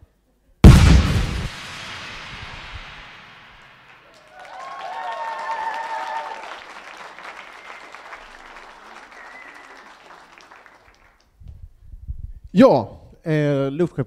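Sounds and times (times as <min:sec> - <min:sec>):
explosion: 0:00.6 - 0:04.0
audience applause: 0:04.1 - 0:11.2.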